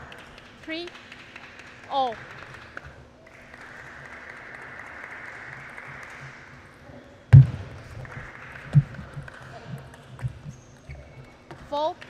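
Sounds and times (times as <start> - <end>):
faint hall hum: 0.0 - 12.0
loud sharp knock: 7.4 - 8.2.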